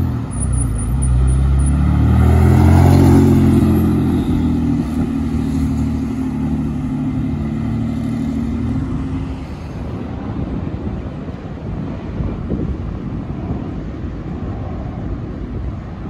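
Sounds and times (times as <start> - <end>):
sports car driving past: 0.0 - 9.8.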